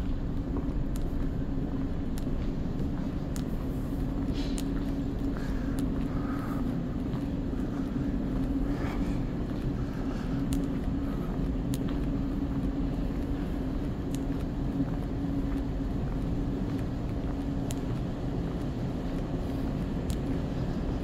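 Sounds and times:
air-handling drone and hum: 0:00.0 - 0:21.0
faint ticks: 0:10.4 - 0:10.9, 0:14.0 - 0:19.3, 0:20.0 - 0:20.4.

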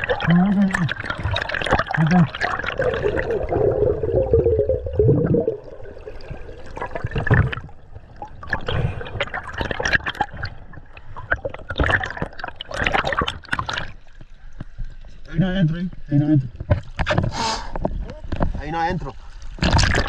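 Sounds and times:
water splashing and gurgling: 0:00.0 - 0:15.2, 0:19.2 - 0:20.0.

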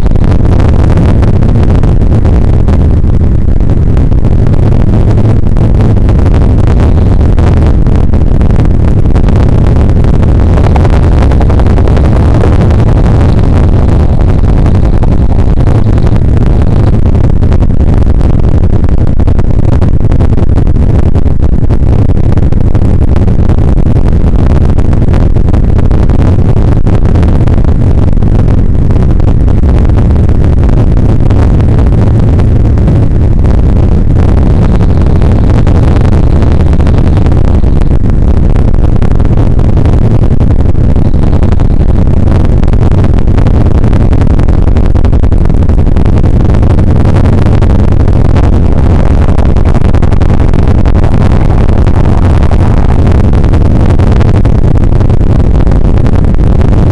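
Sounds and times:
helicopter rotor and turbine noise: 0:00.0 - 0:24.0, 0:27.8 - 0:38.6.

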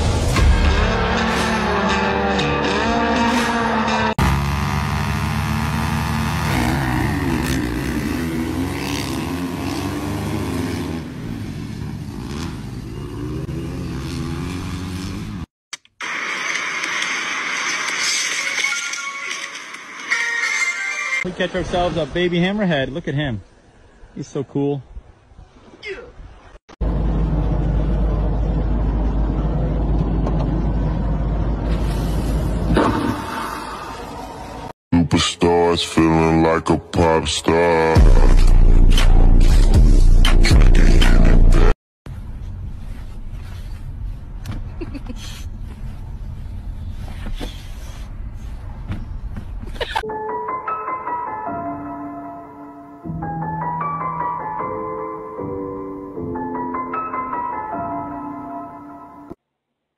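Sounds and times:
dirt bike engines revving: 0:01.1 - 0:15.5
loud low rumble: 0:26.8 - 0:32.7.

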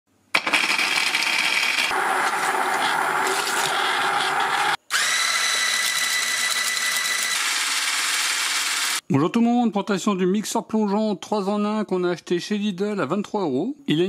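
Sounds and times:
chopper working food in bowl: 0:00.4 - 0:09.0
hand blender motor running: 0:00.4 - 0:09.0
high whine of blending stick: 0:00.5 - 0:09.0.

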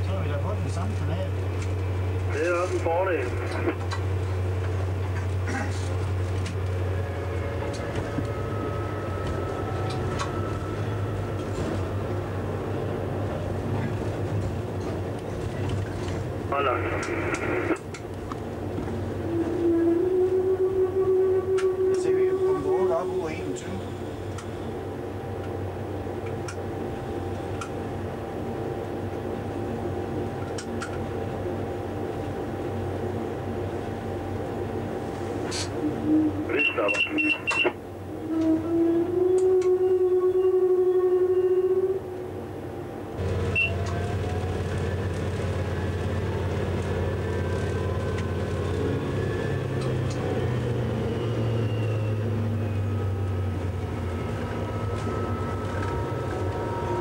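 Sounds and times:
diesel locomotive engine running: 0:00.0 - 0:57.0
thin steady whine: 0:16.5 - 0:17.9, 0:19.2 - 0:38.4.

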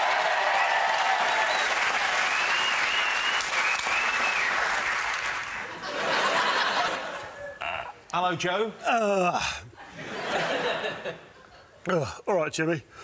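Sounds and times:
studio audience applauding: 0:00.0 - 0:07.0.

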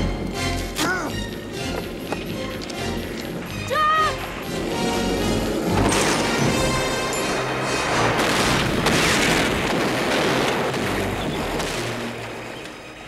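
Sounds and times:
film score music: 0:00.0 - 0:13.0
rumbling explosion booms: 0:07.8 - 0:12.2.

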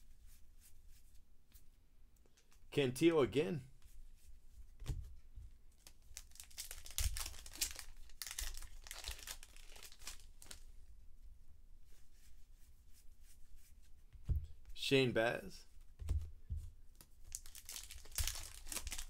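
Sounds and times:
plastic wrapper tearing and crinkling: 0:05.8 - 0:10.6, 0:17.3 - 0:19.0
cards rustling: 0:17.0 - 0:19.0.

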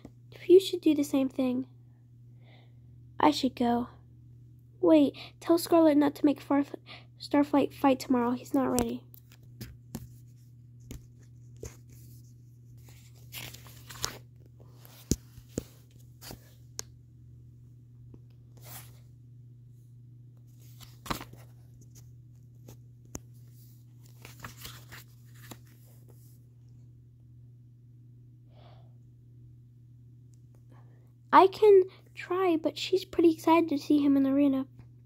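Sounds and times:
steady low hum: 0:00.0 - 0:35.0
pages rustling and flipping: 0:08.7 - 0:16.9, 0:18.5 - 0:19.0, 0:20.4 - 0:26.4.

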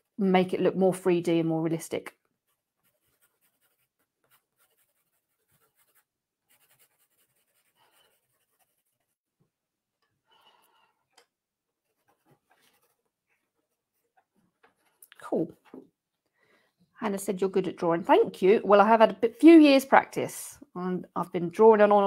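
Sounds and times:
pencil scratching on paper: 0:02.4 - 0:09.2, 0:11.7 - 0:15.0.

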